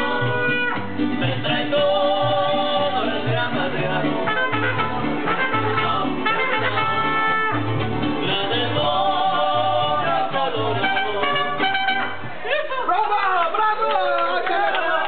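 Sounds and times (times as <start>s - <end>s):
trumpet: 0.0s - 1.1s, 4.2s - 7.8s, 10.0s - 12.4s
person singing: 0.0s - 7.1s, 8.2s - 11.8s
plucked bass line: 0.0s - 12.4s
strummed guitar: 0.0s - 12.4s.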